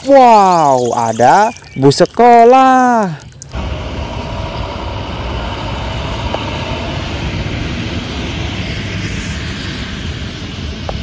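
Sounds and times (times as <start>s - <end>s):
bus driving past: 3.6s - 11.0s.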